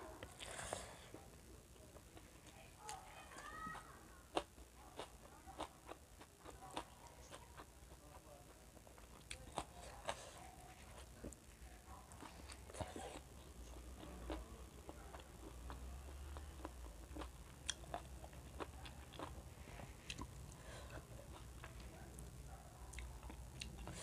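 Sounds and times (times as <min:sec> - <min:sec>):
person chewing with lip smacks: 0:16.4 - 0:20.4.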